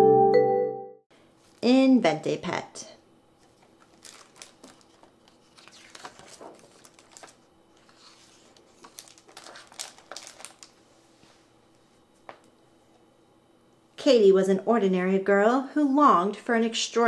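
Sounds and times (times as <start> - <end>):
book pages turning: 3.4 - 10.8.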